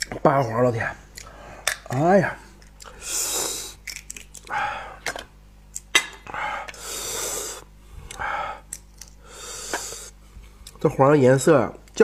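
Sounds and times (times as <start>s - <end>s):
snail shells clicking: 2.6s - 3.0s, 3.6s - 5.9s
loud mouth breathing: 2.8s - 3.8s, 6.3s - 10.2s.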